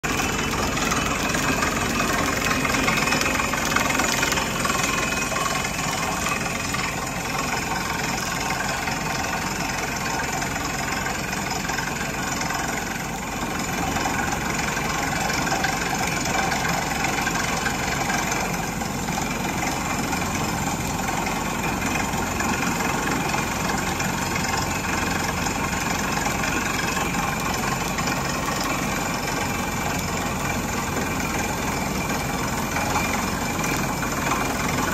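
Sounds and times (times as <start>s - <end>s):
drilling rig engine running: 0.0s - 34.9s.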